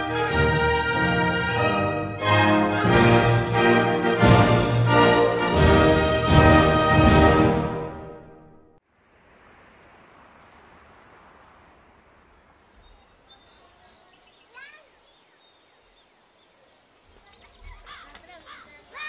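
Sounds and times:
soft outdoor hiss: 8.8s - 19.0s
bird chirps: 12.5s - 19.0s.

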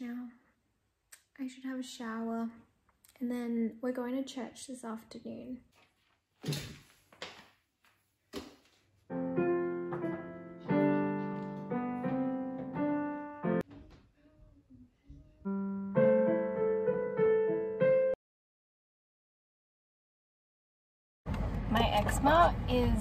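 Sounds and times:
slow piano chords: 9.1s - 13.7s, 15.4s - 18.2s.

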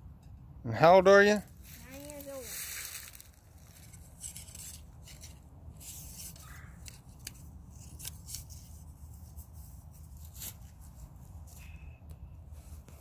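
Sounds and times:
bow handling clicks and rubbing: 3.6s - 12.2s.

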